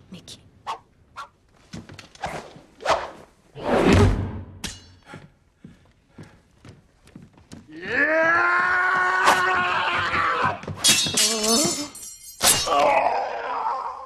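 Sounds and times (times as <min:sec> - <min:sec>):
sword hits: 0:10.8 - 0:12.9.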